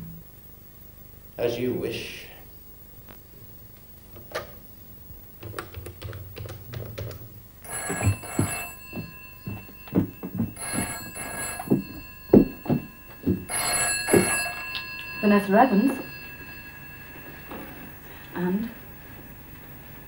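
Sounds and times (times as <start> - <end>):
steady thuds: 4.1 - 18.2
telephone ringing: 7.6 - 19.9.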